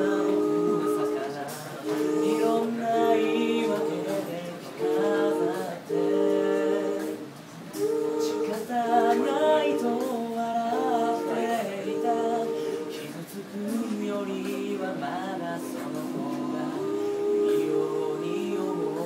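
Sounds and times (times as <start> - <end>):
vocal group singing in harmony: 0.0 - 19.0.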